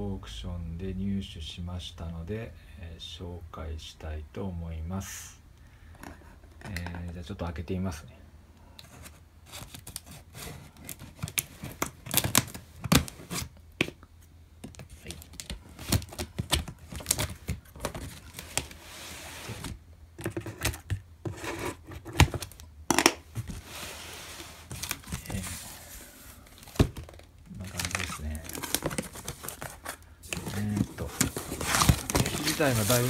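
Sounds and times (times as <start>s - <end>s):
cardboard rustling: 14.6s - 22.6s, 23.3s - 33.0s
tape tearing: 26.6s - 33.0s.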